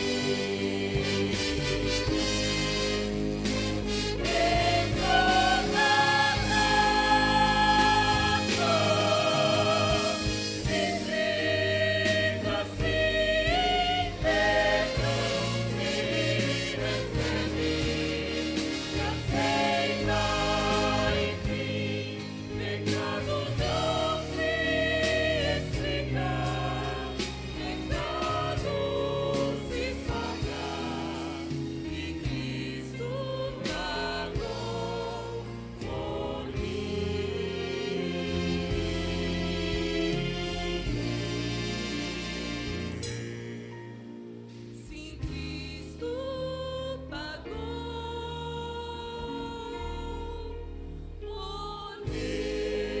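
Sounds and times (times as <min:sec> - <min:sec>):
women singing gospel chorus: 0:00.0 - 0:02.2, 0:04.2 - 0:41.1, 0:51.3 - 0:53.0
low instrumental backing: 0:00.0 - 0:53.0.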